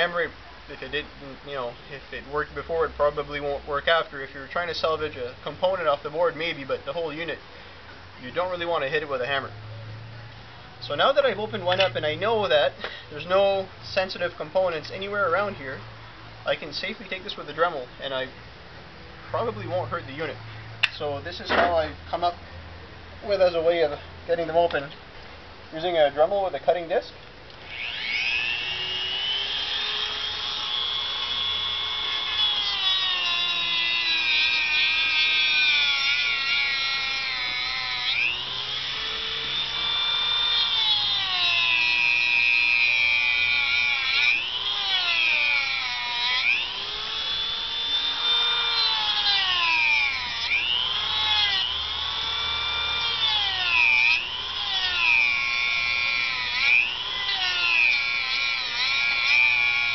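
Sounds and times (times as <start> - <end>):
rotary tool cutting plastic: 27.7 - 59.9.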